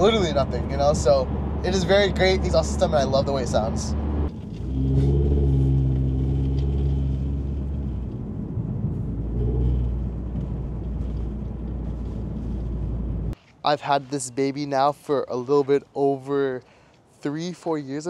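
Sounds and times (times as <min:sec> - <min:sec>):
car engine heard from cabin: 0:00.0 - 0:13.4.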